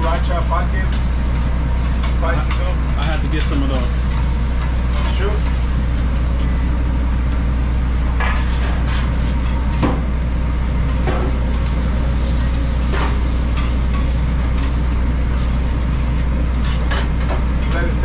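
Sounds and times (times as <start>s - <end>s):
metal spatula scraping on griddle: 0.0s - 6.7s
low machine hum: 0.0s - 18.0s
meat sizzling: 0.0s - 18.0s.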